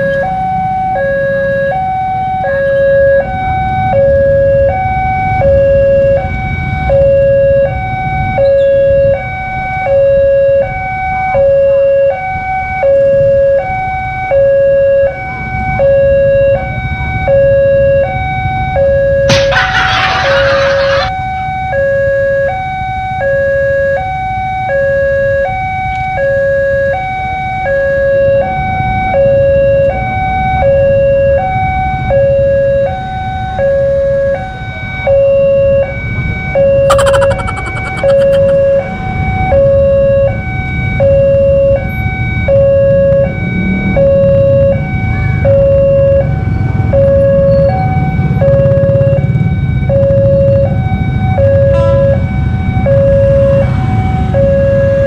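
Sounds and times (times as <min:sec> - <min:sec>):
level crossing alarm: 0:00.0 - 0:21.1, 0:36.5 - 0:43.2.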